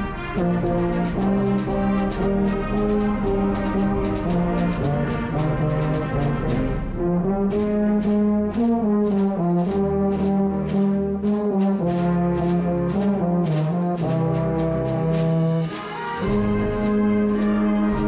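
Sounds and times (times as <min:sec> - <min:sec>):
concert band playing: 0:00.0 - 0:18.0.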